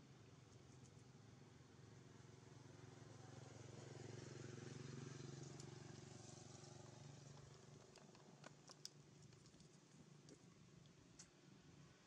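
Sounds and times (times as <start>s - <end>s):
passing vehicle engine hum: 2.1s - 8.5s
faint clicks: 7.3s - 11.4s.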